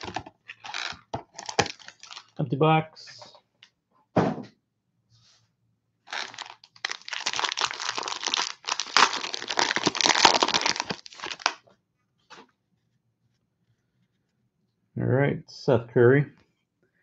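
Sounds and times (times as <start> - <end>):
cellophane wrapper tearing and crinkling: 0.0 - 2.4, 6.1 - 11.6
short thump: 4.2 - 4.5.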